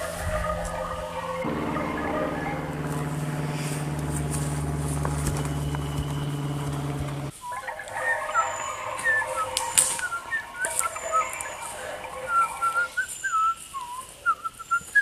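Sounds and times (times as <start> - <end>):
sharp cracks: 0.0 - 7.3
whistled notes: 0.0 - 15.0.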